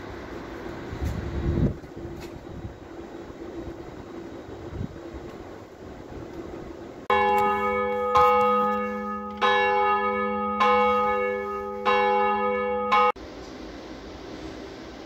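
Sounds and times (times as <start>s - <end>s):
steady low hum: 0.0s - 15.0s
church bell tolling: 7.1s - 13.2s.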